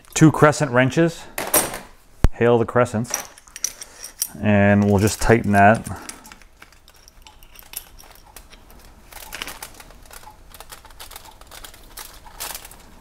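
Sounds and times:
wrenches clicking and scraping: 3.2 - 12.9.

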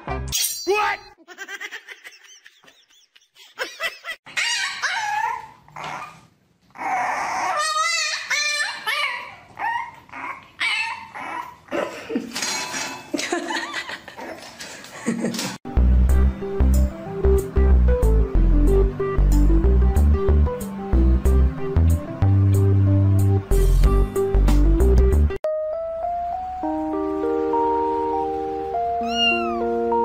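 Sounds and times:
puppy yipping and whining: 4.3 - 11.7, 29.0 - 29.7.

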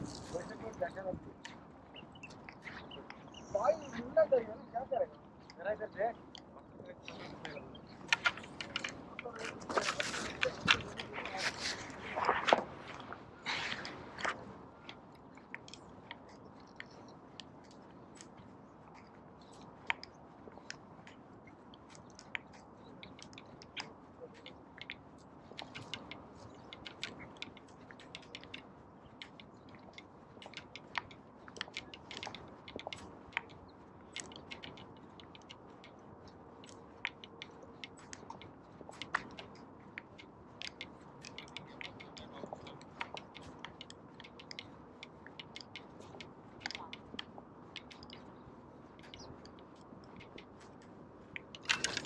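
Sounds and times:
footsteps crunching on sand: 0.0 - 0.8, 9.0 - 14.5.

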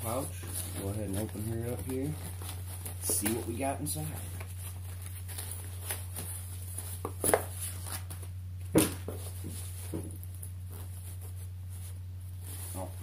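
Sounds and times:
fabric pouch knocks and rustles: 8.7 - 11.3.

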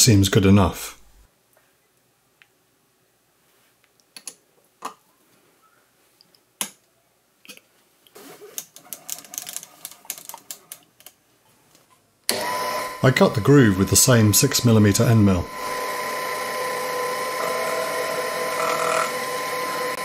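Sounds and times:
milling machine motor running: 15.5 - 20.0.

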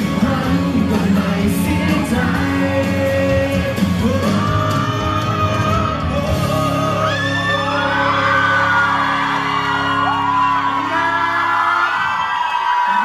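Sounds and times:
backing music: 0.0 - 13.0
man singing into microphone: 0.0 - 13.0.

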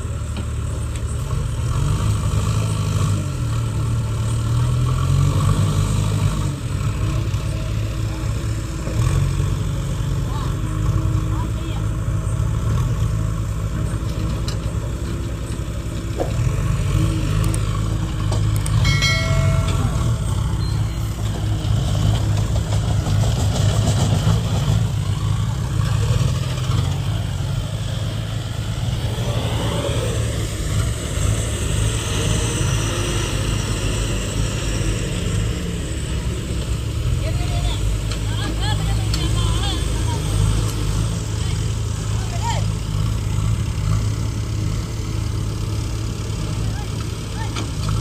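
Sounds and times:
diesel engines rumbling: 0.0 - 48.0
short tone: 18.8 - 21.4.

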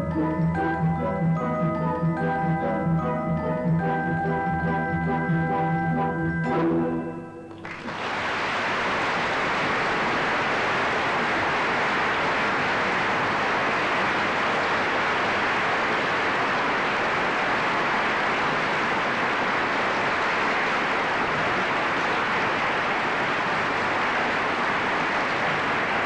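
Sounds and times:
audience applauding: 5.4 - 26.0.

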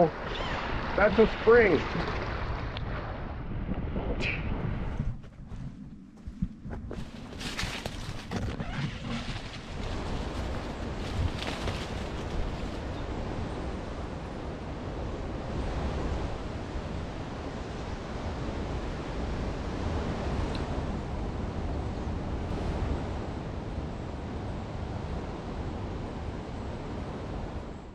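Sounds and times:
ocean surf washing on beach: 0.0 - 3.6
wind rumbling on microphone: 0.0 - 27.9.

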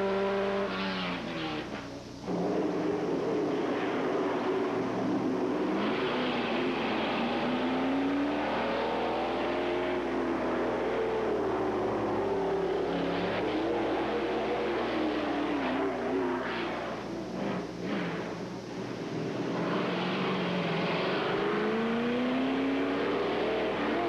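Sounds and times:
race car engine revving: 0.0 - 24.0.

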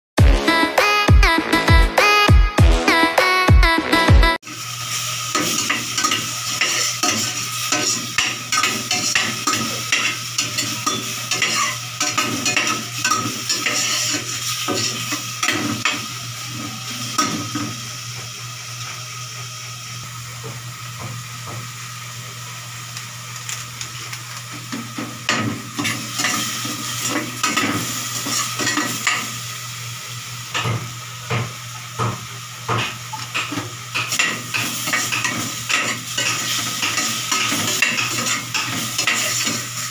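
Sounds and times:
meat sizzling in a pot: 4.4 - 39.9
metal spoon scraping a pot: 5.4 - 15.2.

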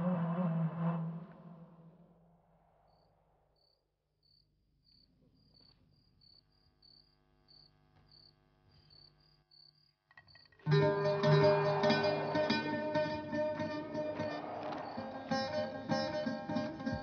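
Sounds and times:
cricket chirping: 2.6 - 17.0
musical tone: 10.7 - 17.0.

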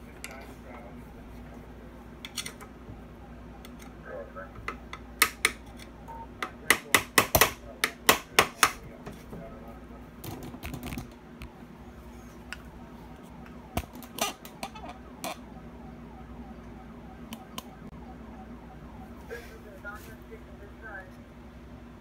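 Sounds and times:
sharp clicks and knocks: 4.6 - 9.2.

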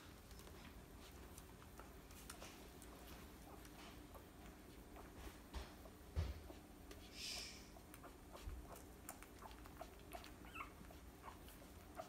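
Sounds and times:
soft clicking and rustling: 0.0 - 7.1, 7.8 - 12.0
puppies squeaking: 7.2 - 12.0.

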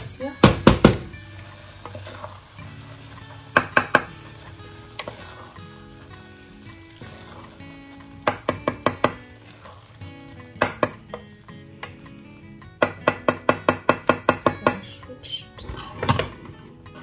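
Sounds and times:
background music: 0.0 - 17.0
spoon stirring rice in a saucepan: 1.3 - 14.8
spoon tapping on a metal pan: 3.5 - 4.2, 8.2 - 9.2, 10.5 - 12.0, 12.8 - 14.8.

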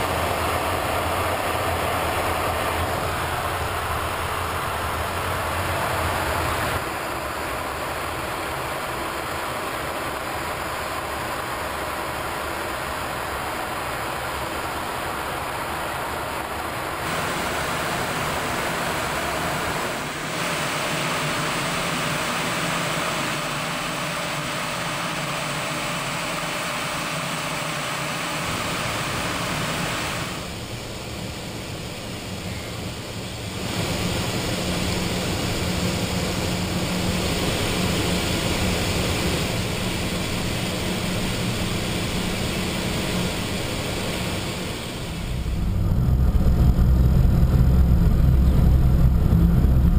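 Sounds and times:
jet engines humming: 0.0 - 49.9
airflow rushing: 12.3 - 49.9.

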